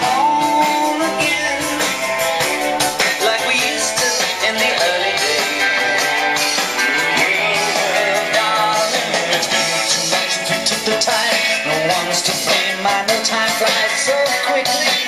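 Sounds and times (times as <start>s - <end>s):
pop song with guitar: 0.0s - 15.0s.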